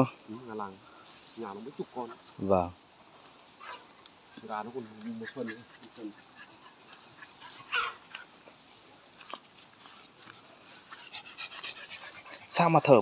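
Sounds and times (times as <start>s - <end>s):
insects chirring: 0.0s - 13.0s
faint ticks: 9.2s - 12.4s.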